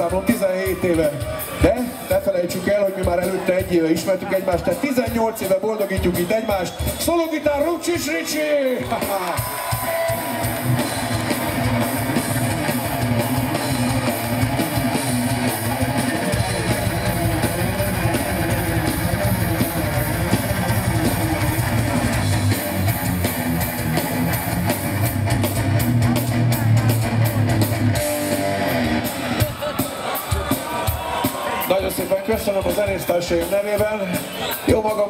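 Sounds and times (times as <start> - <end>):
live hard rock band: 0.0 - 35.0
electric guitar lead: 9.3 - 29.9.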